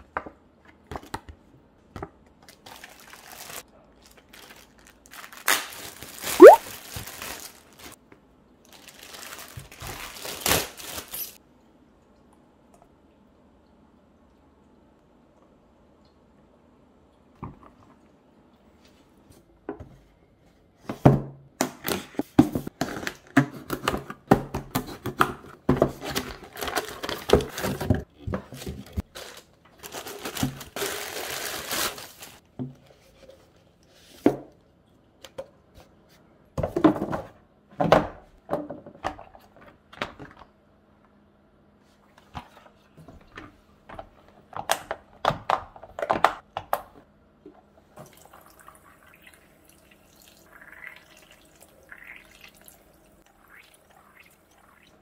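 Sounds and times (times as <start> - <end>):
plastic bag crinkling: 2.6 - 8.0, 8.7 - 11.4, 28.8 - 32.4.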